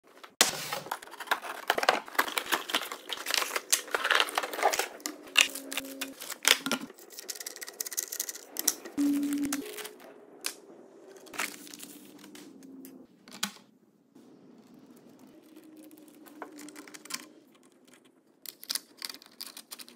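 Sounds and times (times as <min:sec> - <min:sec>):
cardboard packaging tearing and crinkling: 0:00.4 - 0:10.0.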